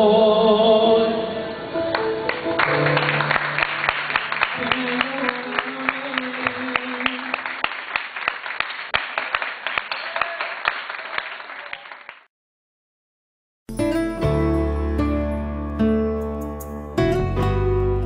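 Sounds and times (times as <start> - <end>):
audience applause: 2.3 - 12.3.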